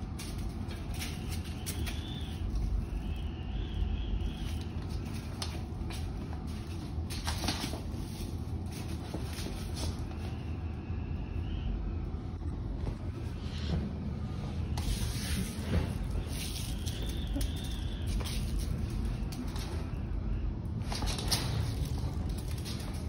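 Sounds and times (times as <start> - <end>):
rustles and soft clicks: 20.7 - 23.0.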